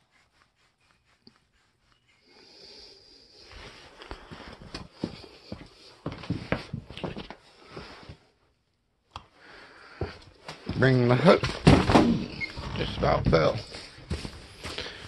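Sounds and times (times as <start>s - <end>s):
handling knocks and thumps: 11.4s - 12.4s.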